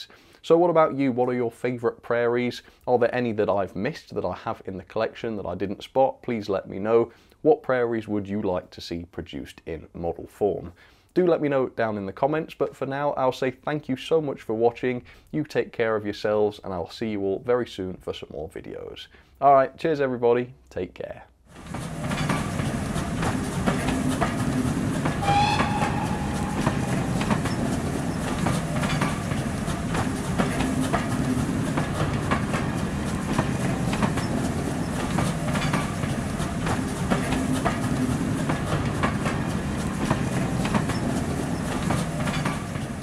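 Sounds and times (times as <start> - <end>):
train running noise: 21.5 - 43.0
wheels clicking over rail joints: 21.5 - 43.0
brief high tone: 25.2 - 27.7.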